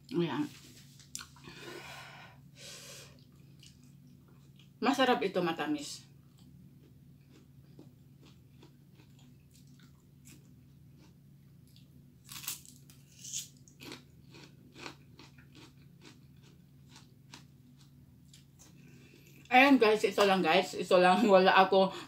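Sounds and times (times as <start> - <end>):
chewing crunchy pepper: 6.2 - 19.5.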